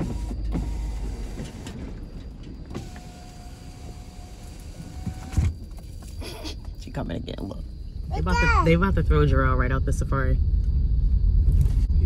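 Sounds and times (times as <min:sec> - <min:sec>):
power window motor whining: 0:00.0 - 0:05.6
car cabin rumble: 0:00.0 - 0:12.0.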